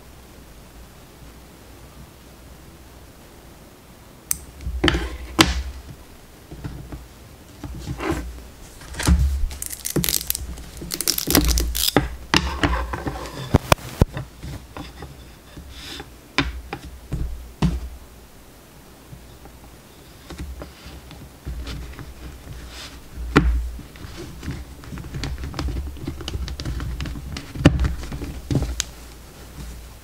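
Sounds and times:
cotton fabric rustling: 4.7 - 16.0, 19.9 - 30.0.

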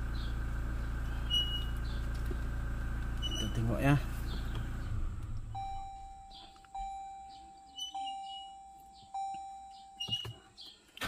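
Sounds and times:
pickup engine idling: 0.0 - 10.0
electronic warning chime: 5.6 - 10.4.

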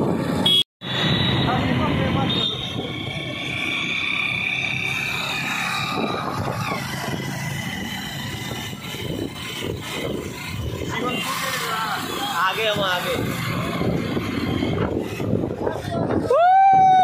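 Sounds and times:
motorcycle engine running: 1.2 - 16.1
wind buffeting microphone: 5.6 - 11.1, 12.8 - 17.0.

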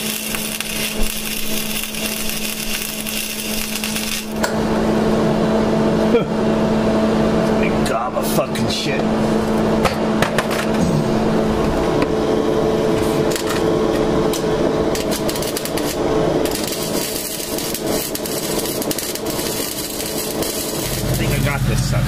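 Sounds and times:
welding crackle and hiss: 0.0 - 4.5, 12.8 - 22.0.

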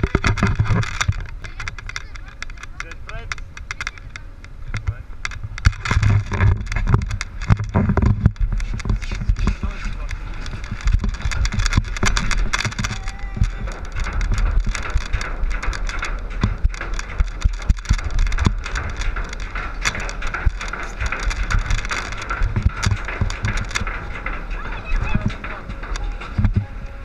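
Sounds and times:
lift conveyor rattling clatter: 0.0 - 27.0
steady low rumble: 0.0 - 27.0.

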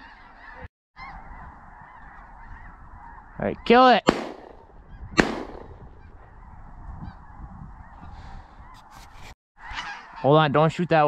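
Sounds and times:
flock of geese calling: 0.0 - 4.0, 9.6 - 10.7
shotgun shots: 4.0 - 6.0.

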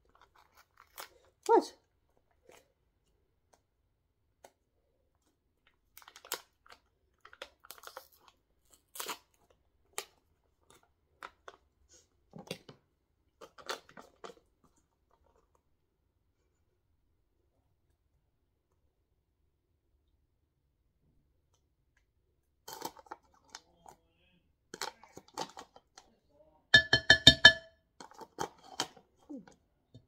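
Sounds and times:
plastic pouch crinkling and tearing: 0.0 - 1.5, 5.8 - 11.6.

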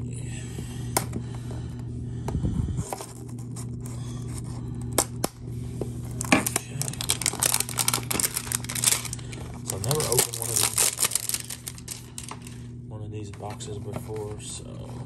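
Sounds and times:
steady low hum: 0.0 - 15.0
plastic wrap being cut: 6.2 - 12.4
plastic wrap crinkling and tearing: 6.2 - 12.6.

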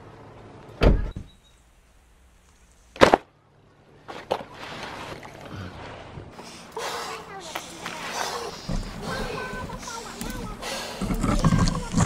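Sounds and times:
vinyl inflatable crinkling: 7.6 - 12.0.

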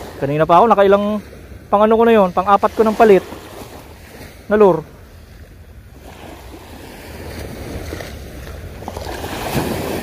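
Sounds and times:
small waves washing on sand: 0.0 - 10.0.

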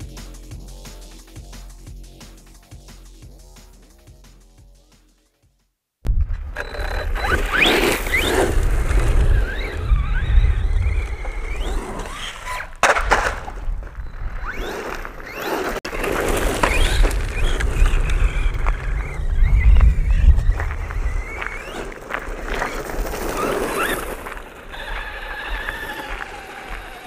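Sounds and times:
strong low rumble: 6.1 - 7.5
electric motor whining: 6.6 - 12.8, 13.9 - 27.0
tyres rolling on gravel: 6.6 - 27.0.

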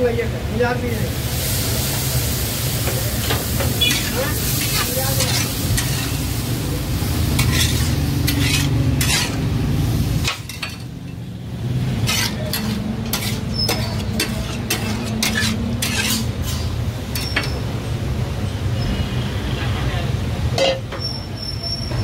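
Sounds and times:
meat sizzling: 1.0 - 11.0, 11.8 - 17.2
steel spatula clanking on griddle: 2.8 - 6.3, 7.3 - 9.5, 10.2 - 11.2, 12.0 - 17.7, 20.6 - 21.2.

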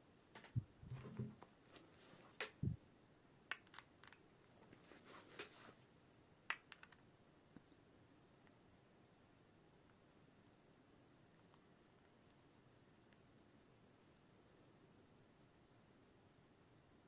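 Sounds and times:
cable and phone handling clicks: 3.5 - 4.3, 6.5 - 7.0.

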